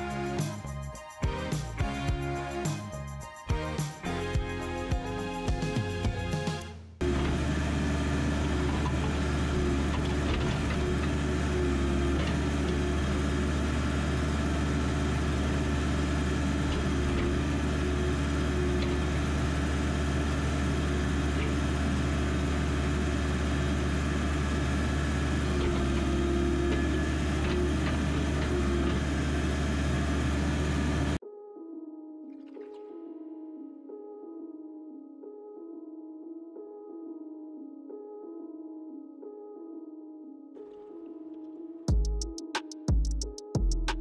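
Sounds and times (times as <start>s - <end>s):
higher engine tone: 4.1s - 31.2s
backhoe engine running: 7.0s - 31.2s.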